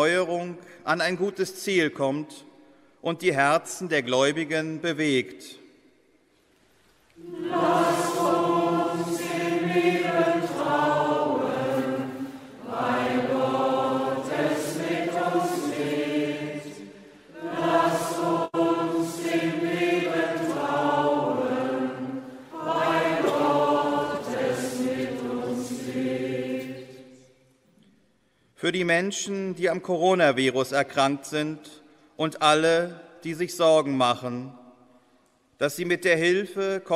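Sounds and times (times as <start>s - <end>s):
voices singing a chant: 7.2s - 27.3s.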